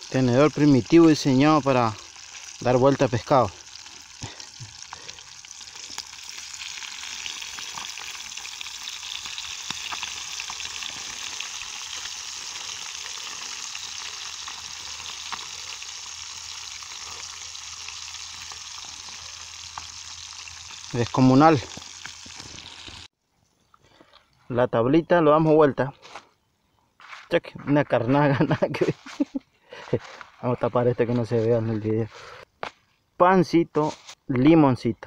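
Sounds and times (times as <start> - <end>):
fish deep-frying in oil: 0.0 - 23.1.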